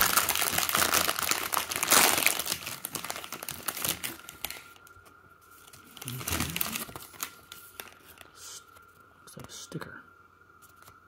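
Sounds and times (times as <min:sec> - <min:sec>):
plastic wrapper tearing and crinkling: 0:00.0 - 0:05.0, 0:05.6 - 0:08.3.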